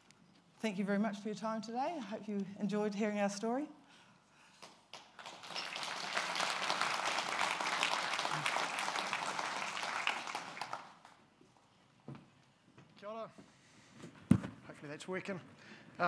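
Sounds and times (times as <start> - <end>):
audience applauding: 4.6 - 11.2.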